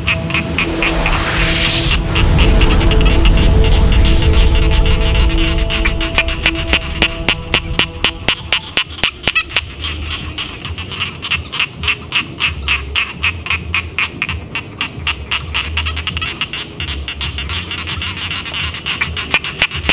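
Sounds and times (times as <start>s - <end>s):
low rumble: 0.0s - 11.2s
frogs croaking: 2.1s - 19.9s.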